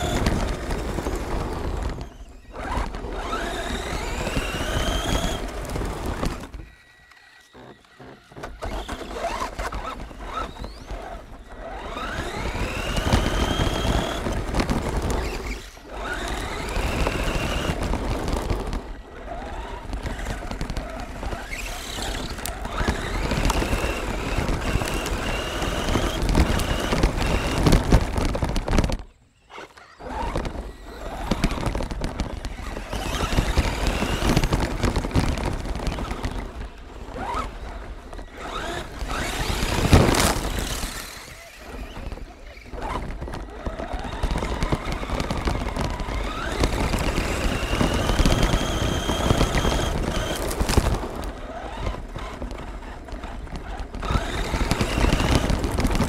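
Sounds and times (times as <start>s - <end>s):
rc truck motor whining: 0.0s - 56.0s
rough drivetrain rumble: 0.0s - 56.0s.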